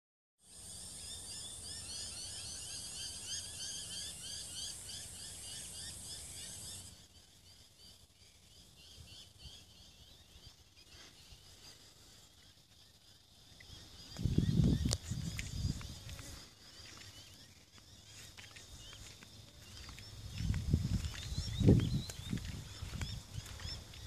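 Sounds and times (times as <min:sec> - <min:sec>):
high insect buzz: 0:00.4 - 0:24.0.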